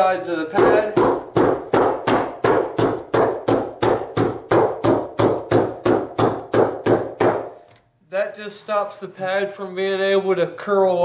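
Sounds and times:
hammer tacker strikes: 0.5s - 7.6s.

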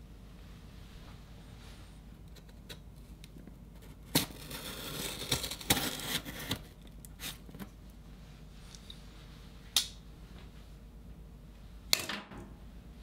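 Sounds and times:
knife cutting box tape: 4.1s - 7.4s.

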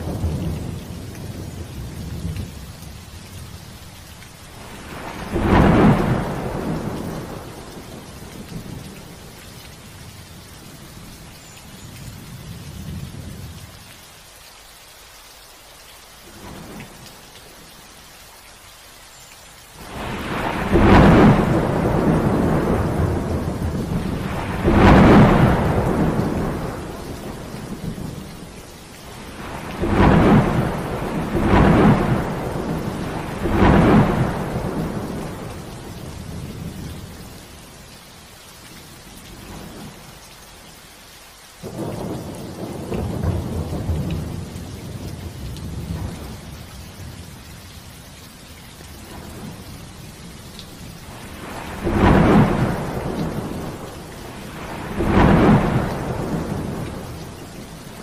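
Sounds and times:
steady rain: 0.0s - 58.0s
thunder rolling and cracking: 4.6s - 7.7s, 19.8s - 28.3s, 29.1s - 36.8s, 41.6s - 46.5s, 51.1s - 57.4s.

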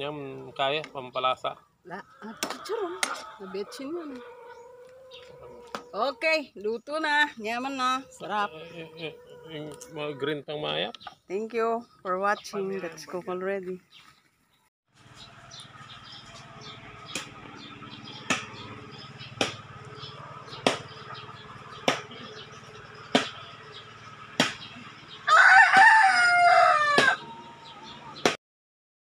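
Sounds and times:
rooster crowing: 2.2s - 6.0s, 25.0s - 28.2s.

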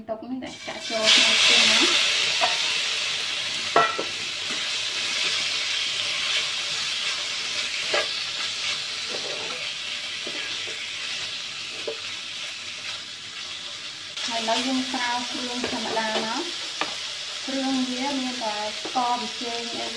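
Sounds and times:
pork sizzling in a wok: 0.4s - 19.9s
spatula scraping a pan: 1.0s - 3.1s, 3.7s - 13.8s.

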